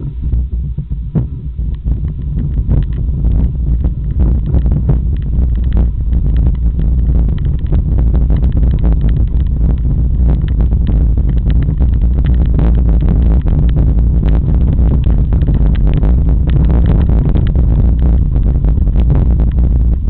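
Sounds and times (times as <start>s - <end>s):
wind rumble on microphone: 0.0s - 20.0s
bike tyres rattling over stones: 3.9s - 18.3s.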